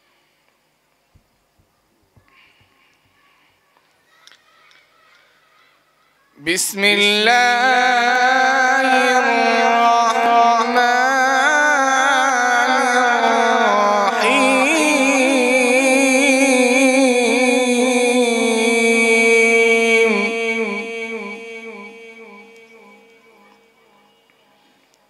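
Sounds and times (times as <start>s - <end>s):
man reciting melodically: 6.4s - 24.2s.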